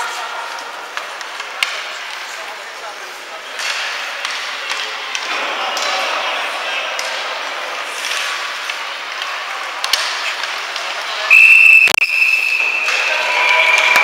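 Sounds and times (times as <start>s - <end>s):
high-pitched whistle blast: 11.3s - 14.0s.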